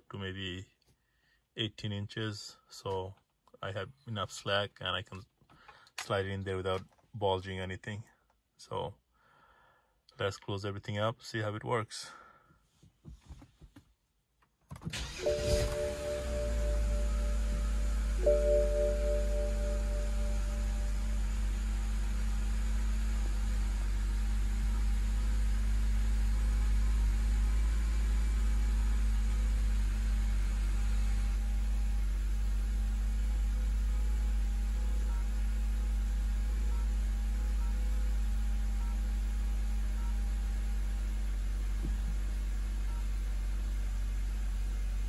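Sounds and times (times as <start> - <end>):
car cabin rumble and hum: 14.7 - 45.0.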